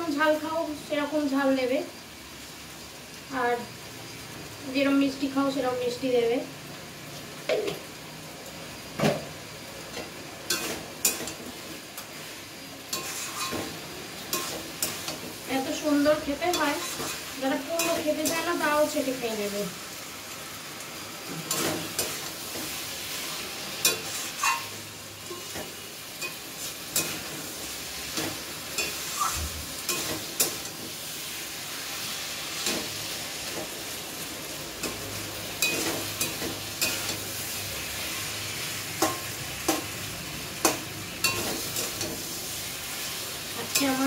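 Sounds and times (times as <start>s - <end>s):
curry sizzling in a pan: 0.0s - 44.0s
spatula scraping a metal pan: 12.9s - 15.2s, 16.4s - 18.6s, 23.8s - 27.3s.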